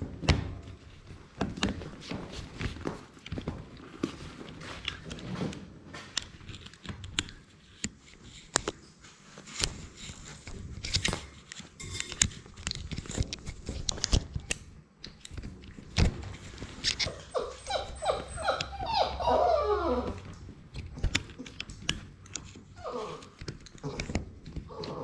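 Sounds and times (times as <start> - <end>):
puppy whining: 17.0 - 20.4, 22.7 - 25.0.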